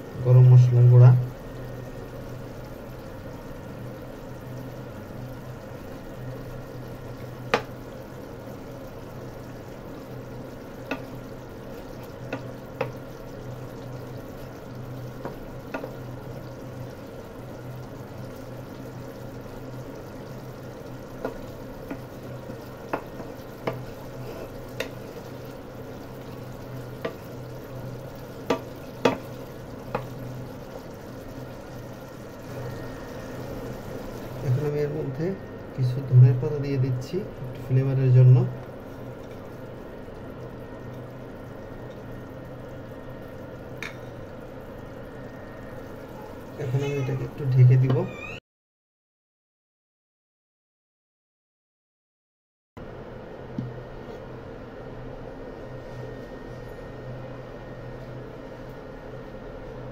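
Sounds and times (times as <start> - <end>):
steady low hum: 0.0 - 47.9
curry simmering in a pan: 0.0 - 48.1
wooden spatula tapping pan: 22.8 - 23.9, 28.5 - 30.1.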